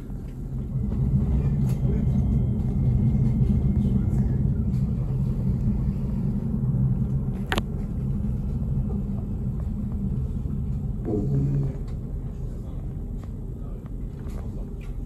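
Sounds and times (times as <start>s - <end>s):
tram rumbling on rails: 0.0s - 15.0s.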